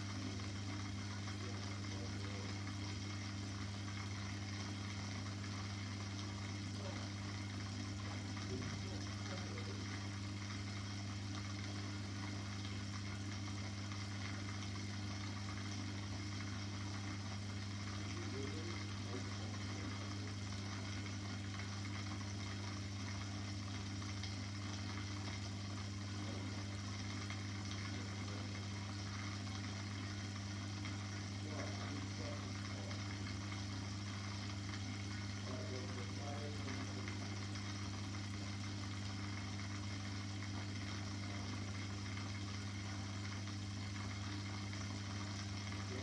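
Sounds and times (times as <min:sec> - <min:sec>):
aquarium pump humming: 0:00.0 - 0:46.0.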